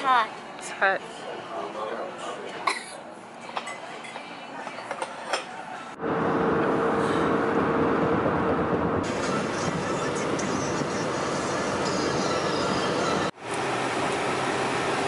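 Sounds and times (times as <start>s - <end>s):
highway road noise: 5.2s - 15.0s.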